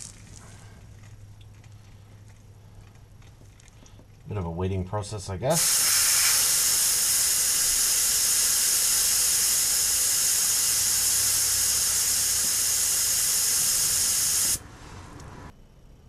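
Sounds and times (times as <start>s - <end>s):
air hissing from tire valve: 5.5s - 15.5s.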